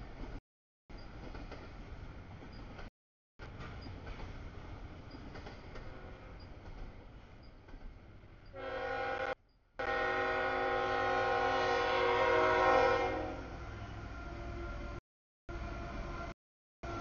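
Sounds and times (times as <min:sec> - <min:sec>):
locomotive air horn chord: 0:08.5 - 0:17.0.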